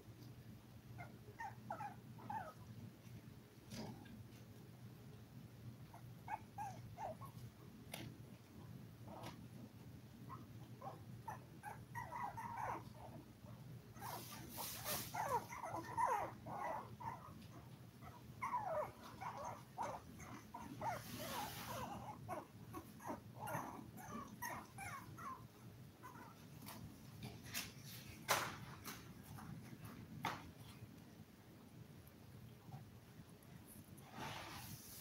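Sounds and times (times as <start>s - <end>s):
low steady hum: 0.0s - 35.0s
puppies whimpering: 11.3s - 12.9s, 18.0s - 26.4s.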